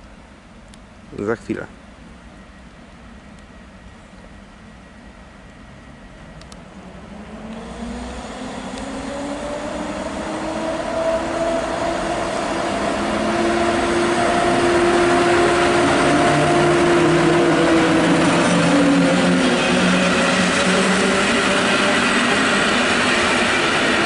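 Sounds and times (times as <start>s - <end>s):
electric locomotive motors whining: 2.2s - 24.0s
wheels rumbling on rails: 2.2s - 24.0s.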